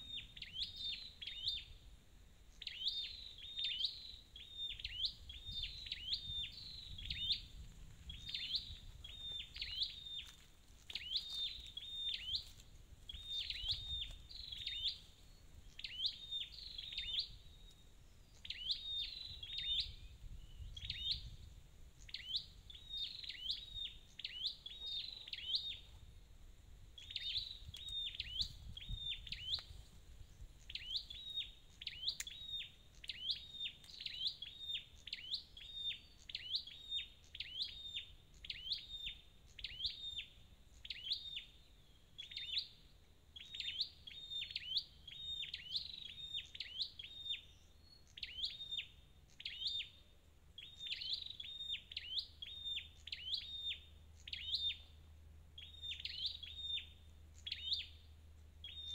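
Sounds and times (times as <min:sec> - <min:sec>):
bird chirping in fast bursts: 0:13.1 - 0:21.4, 0:27.0 - 0:29.7.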